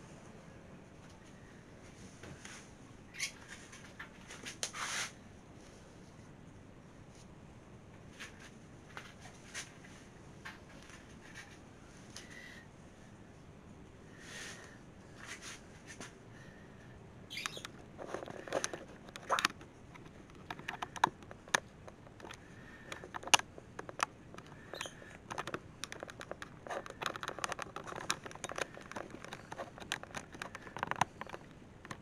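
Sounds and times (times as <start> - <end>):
short scratching rustles: 1.9 - 5.8
light clicks and taps: 17.4 - 32.0.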